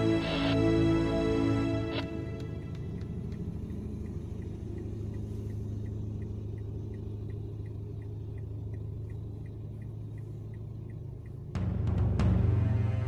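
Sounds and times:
car driving on dirt road: 0.0s - 13.0s
faint regular ticking: 2.4s - 11.8s.

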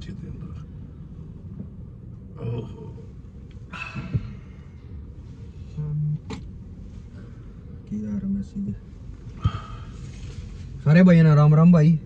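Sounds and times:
low steady rumble: 0.0s - 12.0s
breathy exhale: 3.7s - 4.8s, 9.4s - 10.2s.

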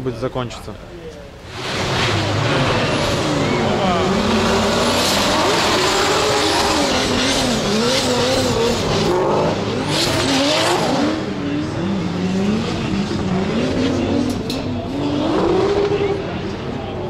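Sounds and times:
car engine revving: 1.4s - 17.0s.

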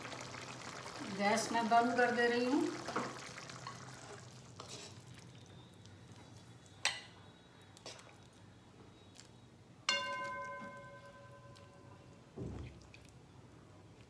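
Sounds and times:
spoon clinking against pan: 6.8s - 7.2s, 9.9s - 12.0s.

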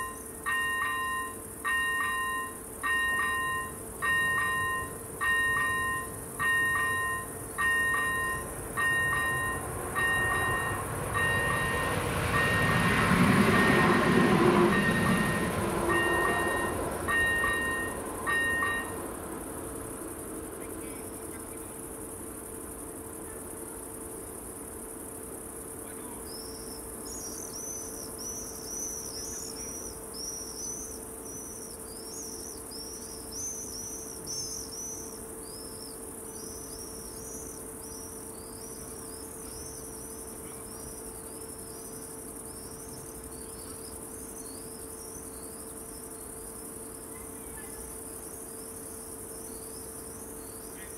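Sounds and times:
level-crossing warning bell: 0.0s - 19.3s
insect high trill: 0.0s - 50.9s
short repeated insect chirps: 0.0s - 50.9s.

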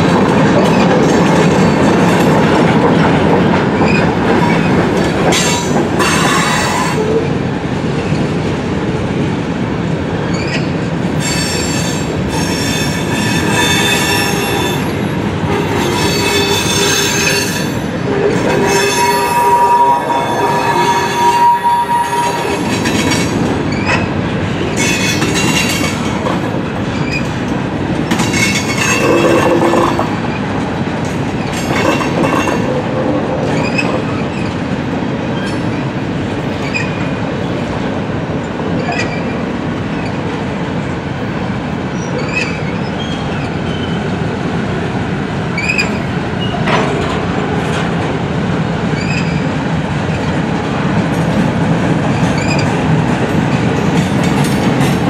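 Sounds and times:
freight train wheels rumbling: 0.0s - 55.0s
wheel squeals: 18.6s - 22.7s, 36.6s - 37.1s, 42.0s - 44.0s.

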